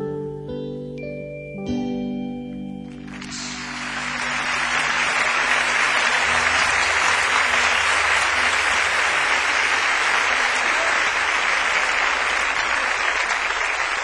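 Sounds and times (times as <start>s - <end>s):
audience applauding: 2.9s - 14.0s.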